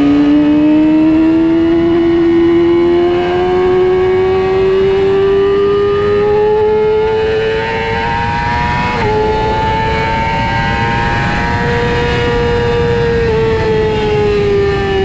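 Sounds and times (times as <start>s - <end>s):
racing motorcycle engine accelerating: 0.0s - 15.0s.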